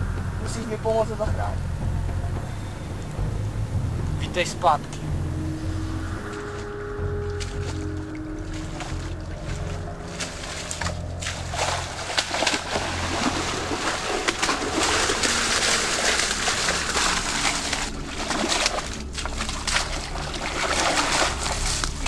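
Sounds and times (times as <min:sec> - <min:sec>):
feet splashing through water: 0:06.1 - 0:22.0.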